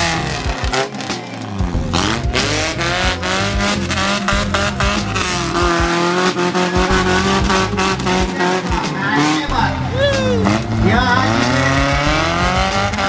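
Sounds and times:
off-road buggy engine revving: 0.0 - 13.0.

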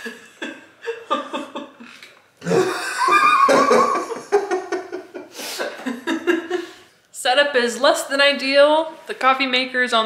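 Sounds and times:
woman laughing: 0.0 - 6.8.

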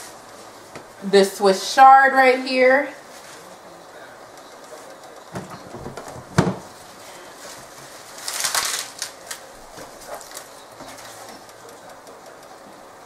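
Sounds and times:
knock on counter: 5.4 - 6.6
leafy rustling: 6.7 - 11.9.

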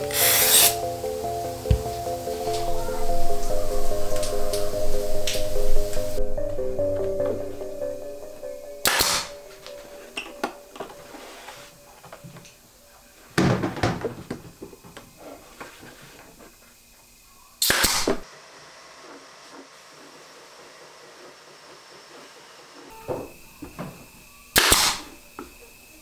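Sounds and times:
pneumatic nailer firing: 0.0 - 0.8, 8.8 - 9.4, 17.6 - 18.3, 24.5 - 25.2.

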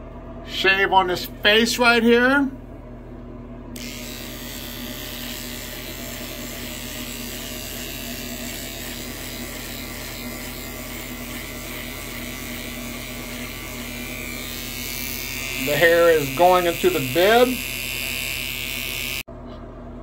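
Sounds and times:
electric beard trimmer buzzing: 3.8 - 19.3.

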